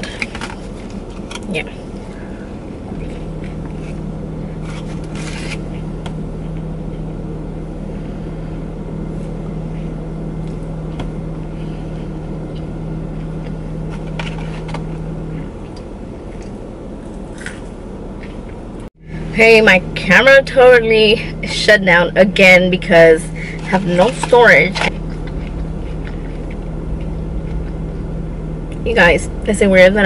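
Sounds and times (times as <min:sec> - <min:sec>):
car engine humming: 0:00.0 - 0:30.0
steady tone: 0:19.0 - 0:30.0
faint eating noises: 0:24.2 - 0:28.8.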